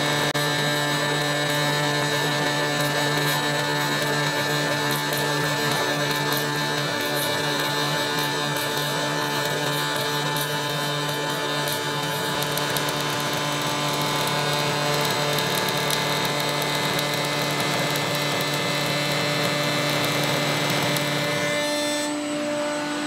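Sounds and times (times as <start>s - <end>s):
router whining and cutting wood: 0.0s - 23.0s.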